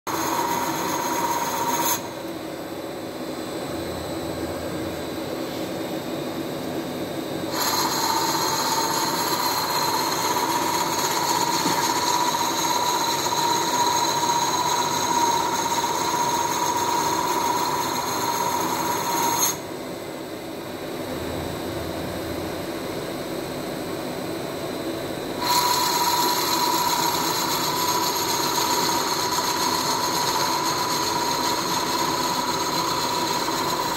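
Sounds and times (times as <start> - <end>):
lathe tool cutting with whine: 0.1 - 2.2, 7.5 - 19.7, 25.4 - 33.9
machine running: 0.1 - 2.4, 7.3 - 19.7, 25.4 - 33.9.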